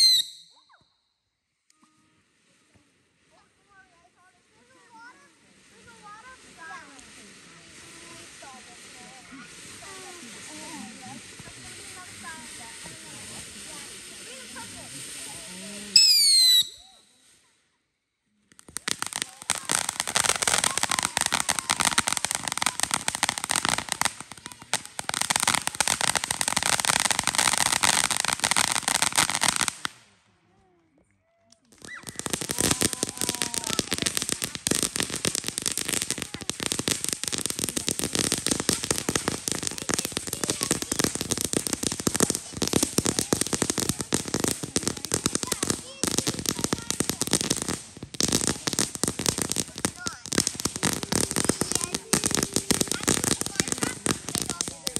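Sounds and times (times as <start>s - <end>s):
fountain fireworks crackling: 0.0s - 0.6s, 1.8s - 17.5s, 18.3s - 30.2s, 31.5s - 54.9s
falling whistles: 0.0s - 0.7s, 15.9s - 17.2s.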